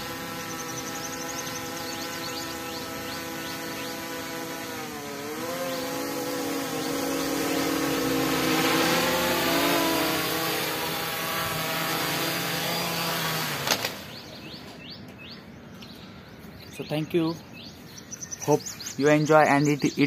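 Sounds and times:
drone motors whining: 0.0 - 14.8.

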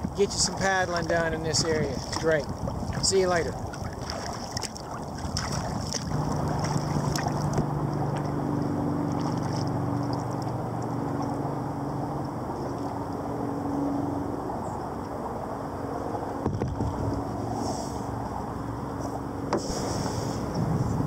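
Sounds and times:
steady low hum: 0.0 - 21.0
water and wind noise: 0.0 - 21.0
sharp splash-like clicks: 0.9 - 11.4.

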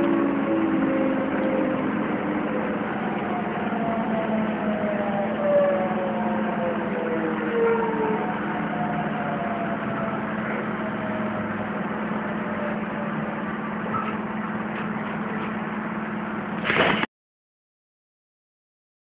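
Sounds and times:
electric train running: 0.0 - 4.7.

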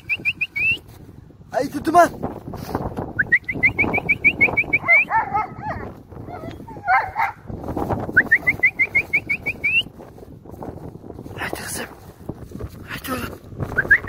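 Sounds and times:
dogs whining and yelping: 4.7 - 7.5.

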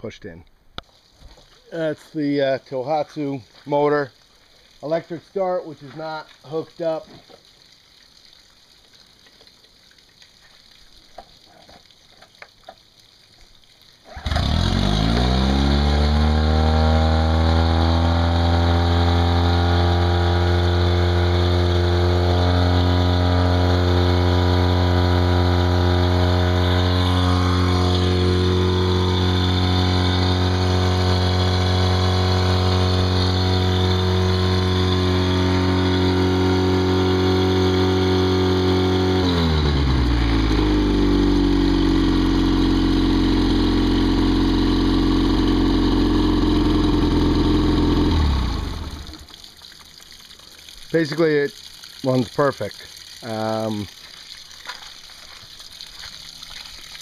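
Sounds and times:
outboard motor starting and idling: 14.0 - 57.0.

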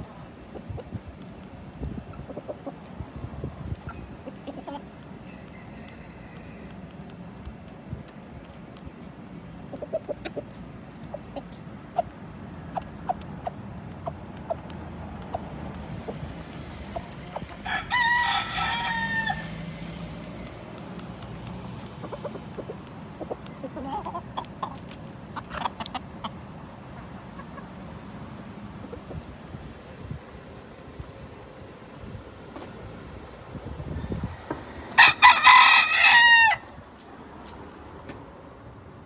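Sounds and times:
chickens clucking: 0.0 - 17.8, 19.0 - 34.8
chickens pecking on sidewalk: 0.0 - 39.0
rooster crowing: 5.3 - 6.8, 17.6 - 19.8, 35.0 - 36.8.

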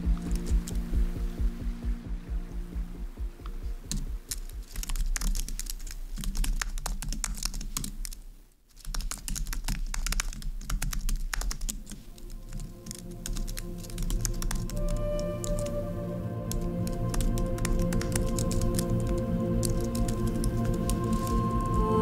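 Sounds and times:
typing on computer keyboard: 3.9 - 15.8, 16.4 - 22.0.

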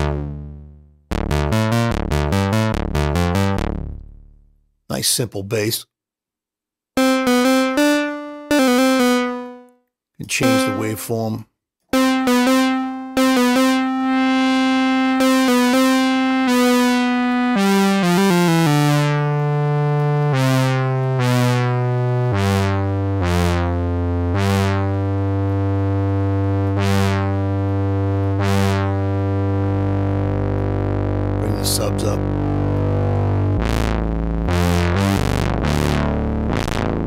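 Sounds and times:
synthesizer held notes: 7.0 - 9.7, 10.3 - 11.2, 11.9 - 37.0.

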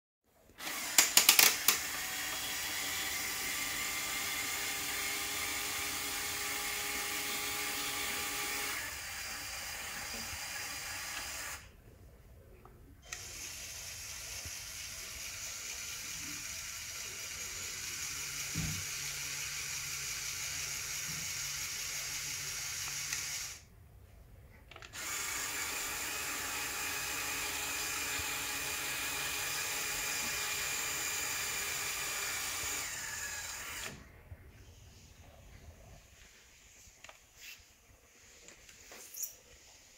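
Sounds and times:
small electric motor whine: 13.0 - 23.7, 24.9 - 34.0.

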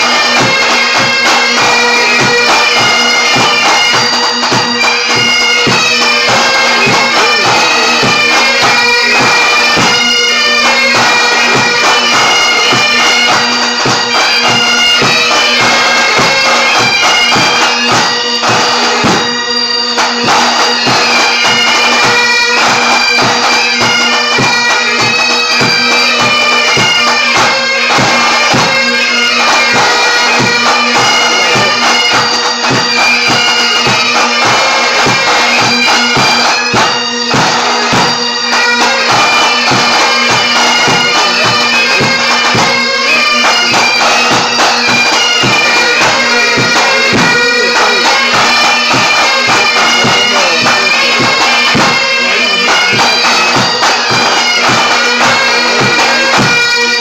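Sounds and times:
bagpipes playing melody: 0.0 - 57.0
snare and bass drums: 10.6 - 19.3, 29.4 - 38.2, 43.4 - 56.6.

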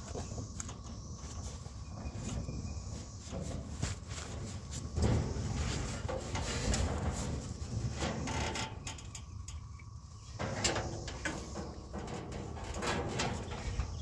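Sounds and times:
metal scraping and knocking: 3.3 - 14.0.

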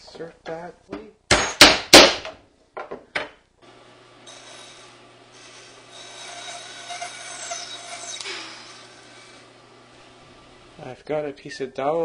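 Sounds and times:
bandsaw humming: 3.7 - 10.8
bandsaw cutting wood: 4.2 - 9.5.

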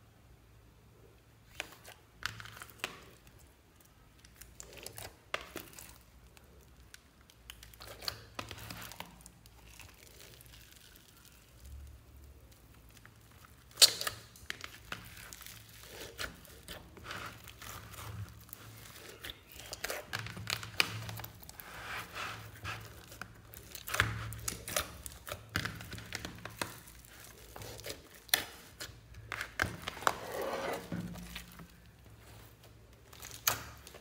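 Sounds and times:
hands squishing slime: 1.5 - 34.0
sticky crackles and pops: 22.4 - 30.2.

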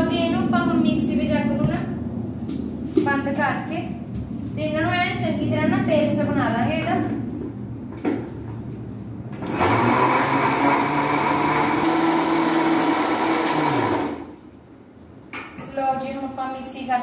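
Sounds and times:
mixer grinder motor running: 9.4 - 14.4.

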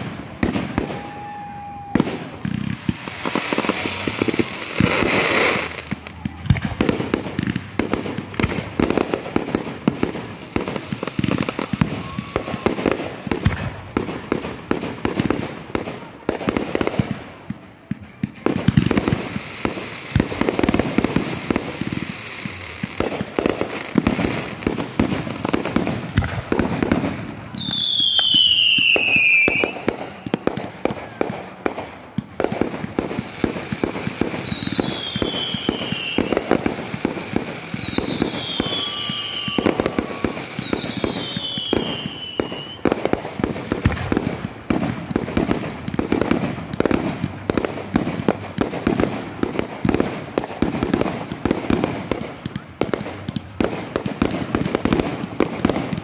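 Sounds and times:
descending firework whistles: 0.0 - 13.8, 19.2 - 31.8, 33.4 - 43.0
fireworks bangs and crackling: 0.0 - 56.0.

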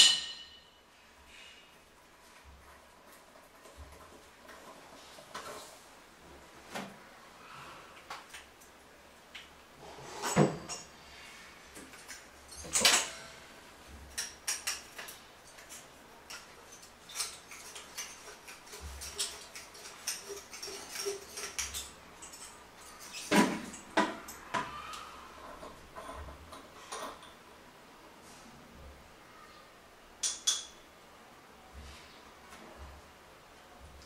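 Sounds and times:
metal parts clinking and knocking: 11.8 - 13.2, 14.1 - 24.5.

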